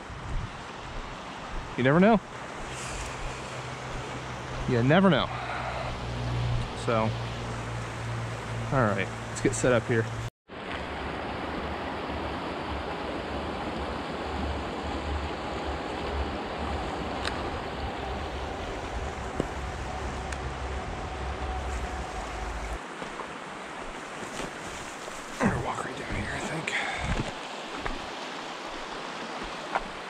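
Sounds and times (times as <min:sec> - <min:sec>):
stream rushing over rocks: 0:00.5 - 0:05.9, 0:10.5 - 0:30.0
low rumble: 0:16.0 - 0:22.8.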